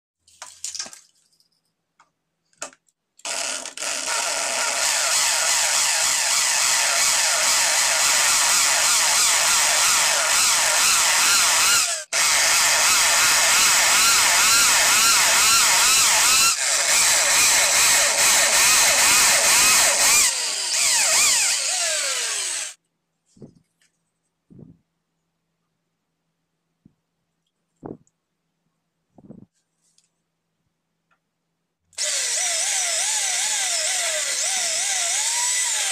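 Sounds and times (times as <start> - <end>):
electric drill boring into tile: 3.2 - 22.8, 32.0 - 35.9.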